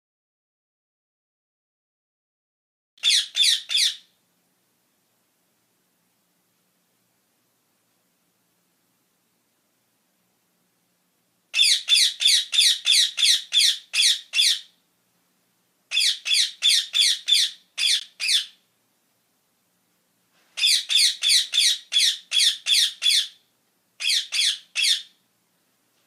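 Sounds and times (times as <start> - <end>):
parakeets screeching: 3.0 - 4.1, 11.6 - 14.7, 15.9 - 18.6, 20.6 - 23.4, 24.0 - 25.2.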